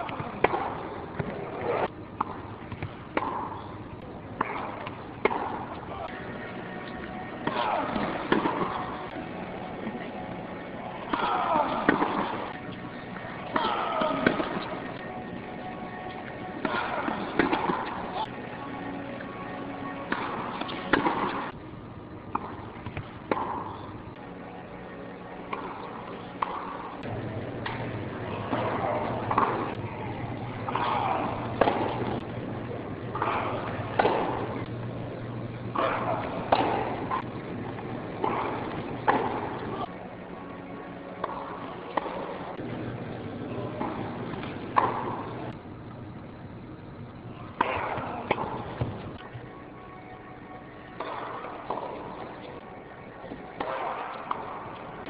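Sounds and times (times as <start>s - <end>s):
crowd noise: 0.0s - 21.6s, 22.4s - 55.0s
tennis balls struck by rackets: 0.0s - 21.6s, 22.2s - 32.3s, 32.9s - 34.8s, 35.7s - 42.7s, 43.5s - 45.6s, 47.5s - 49.4s, 50.8s - 55.0s
tennis ball hits and bounces: 2.2s - 3.6s, 4.4s - 6.1s, 7.1s - 8.9s, 20.0s - 21.6s, 22.3s - 23.8s, 25.4s - 27.8s, 33.1s - 34.5s, 37.8s - 39.6s, 41.1s - 42.3s, 43.7s - 45.3s, 50.9s - 52.1s, 53.3s - 54.9s.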